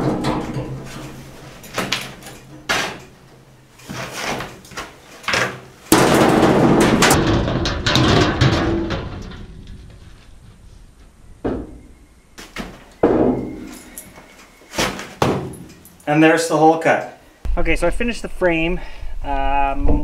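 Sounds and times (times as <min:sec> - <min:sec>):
metal panel crashing clatter: 0:00.0 - 0:10.2.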